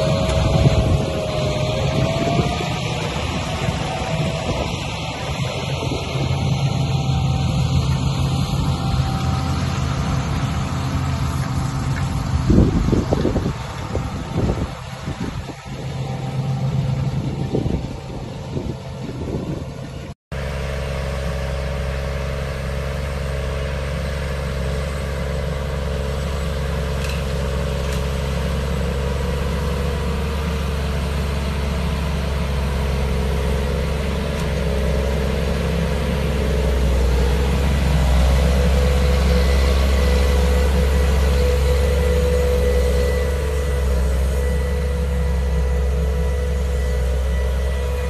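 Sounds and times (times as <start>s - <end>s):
steady whine: 0.0s - 20.2s, 21.0s - 48.0s
tractor diesel engine under load: 0.0s - 48.0s.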